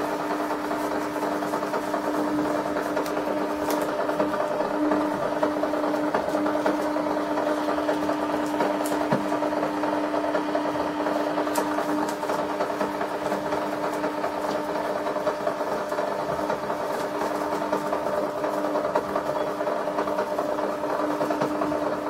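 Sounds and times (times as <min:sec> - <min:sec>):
receipt printer humming and buzzing: 0:00.0 - 0:22.0
paper rustling: 0:00.6 - 0:04.4.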